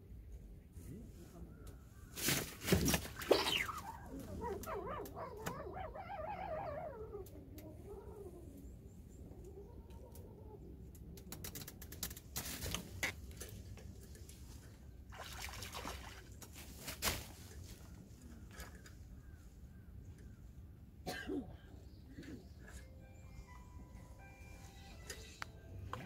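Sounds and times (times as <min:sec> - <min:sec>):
fish splashing in water: 0:15.1 - 0:16.4.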